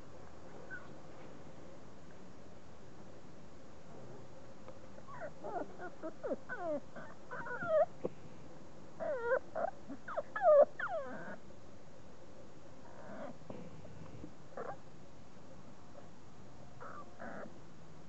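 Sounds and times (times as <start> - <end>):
puppies whining and yelping: 5.1 - 8.0, 9.0 - 11.4, 16.8 - 17.5.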